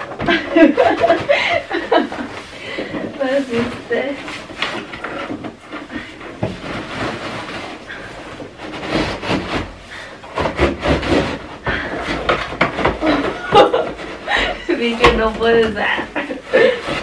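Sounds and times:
cardboard and plastic rustling: 0:00.0 - 0:17.0.

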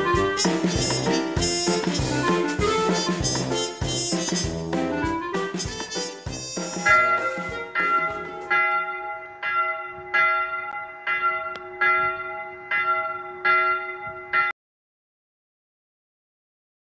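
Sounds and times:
church bell tolling: 0:06.8 - 0:14.6.

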